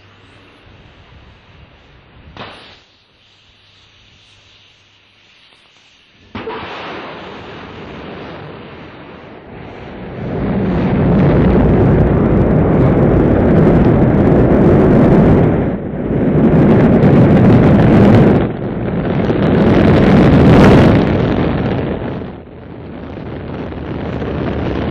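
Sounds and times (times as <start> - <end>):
rocket engines rumbling: 6.2 - 24.9.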